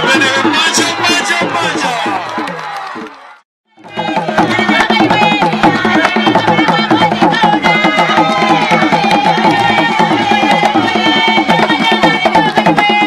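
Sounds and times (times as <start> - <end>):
drums beating fast rhythm: 0.0 - 13.0
voices singing: 3.8 - 13.0.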